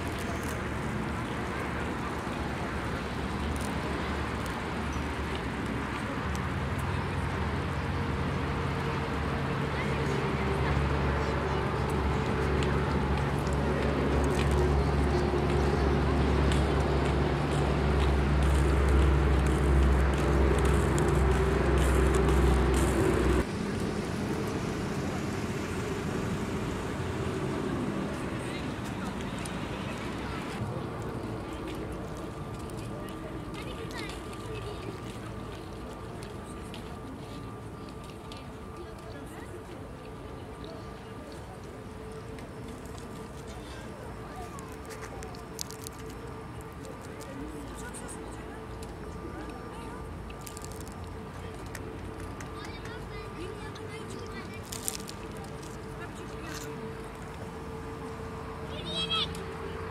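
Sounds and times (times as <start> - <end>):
rushing background noise: 0.0 - 59.9
low mechanical rumble: 10.4 - 38.9.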